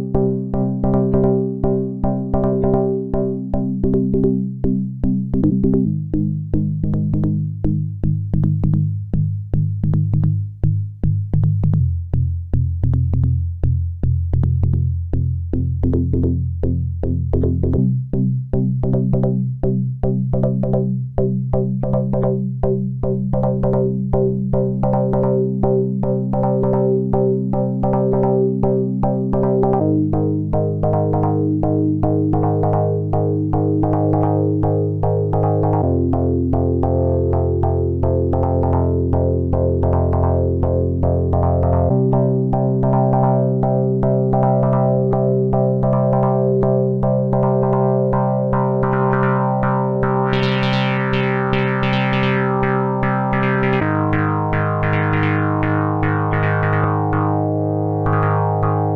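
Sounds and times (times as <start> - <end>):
pulsing synthesizer chords: 24.6 - 58.9.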